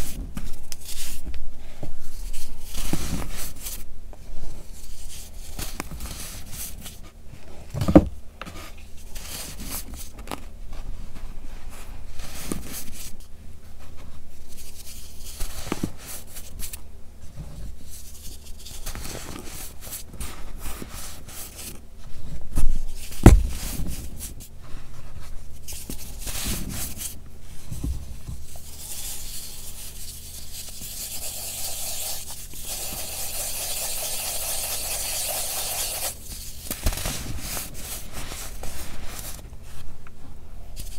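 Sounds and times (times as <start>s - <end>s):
heavy thumps: 23.1s - 24.3s
hands crunching powder blocks: 25.7s - 39.7s.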